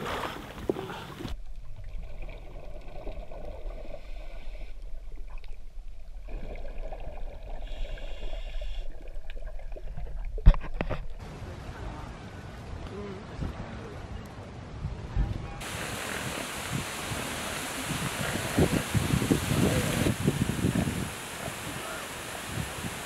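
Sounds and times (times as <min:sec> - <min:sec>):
faint bubbling: 0:15.6 - 0:23.0.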